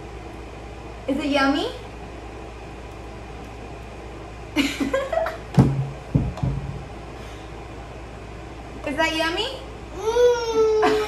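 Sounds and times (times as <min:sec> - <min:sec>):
low room hum: 0:00.0 - 0:11.0
woman laughing: 0:04.6 - 0:05.4, 0:10.8 - 0:11.0.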